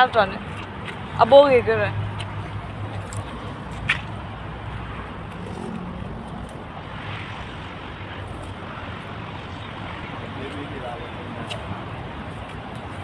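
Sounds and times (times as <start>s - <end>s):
outdoor rumble and hiss: 0.0s - 13.0s.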